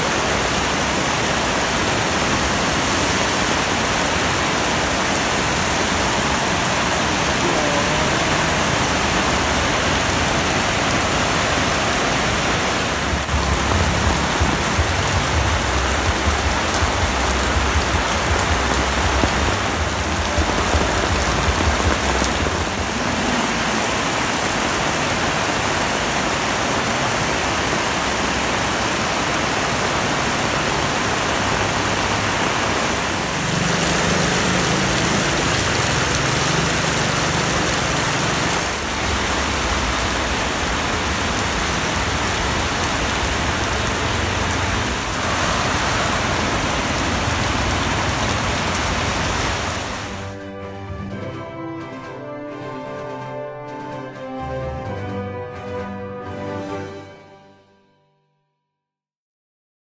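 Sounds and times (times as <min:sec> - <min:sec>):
heavy rain pouring: 0:00.0 - 0:56.9
vehicle engine rumbling: 0:12.3 - 0:24.6.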